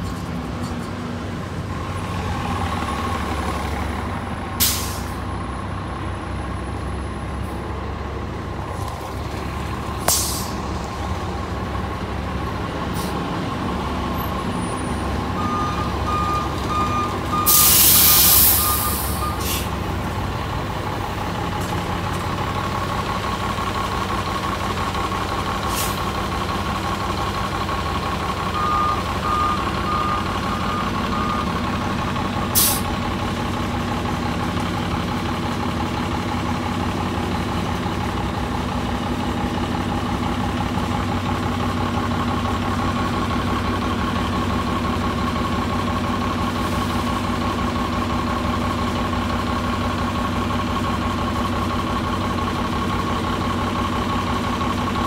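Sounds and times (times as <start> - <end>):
bus engine idling with whine: 0.0 - 55.0
air brake hisses: 4.6 - 5.2, 10.1 - 10.6, 17.5 - 19.8, 25.7 - 26.0, 32.6 - 32.9
short electronic beeps: 15.4 - 19.5.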